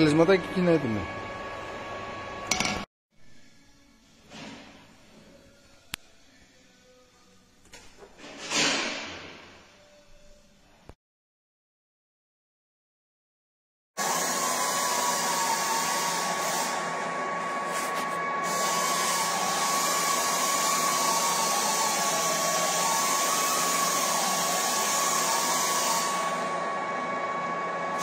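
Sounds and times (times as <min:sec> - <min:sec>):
metal lathe whining: 0:14.0 - 0:28.0.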